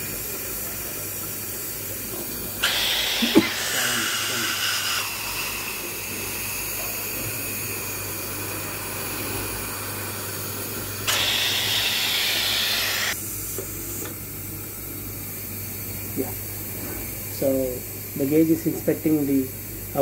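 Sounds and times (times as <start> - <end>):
compressed air hissing: 0.0 - 14.1.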